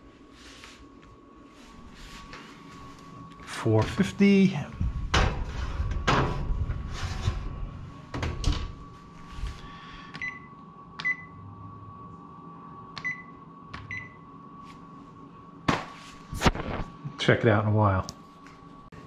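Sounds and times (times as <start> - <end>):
faint steady hum: 0.0 - 19.0
oven door shutting: 4.8 - 9.0
keypad beeping: 10.2 - 11.4, 13.0 - 14.2.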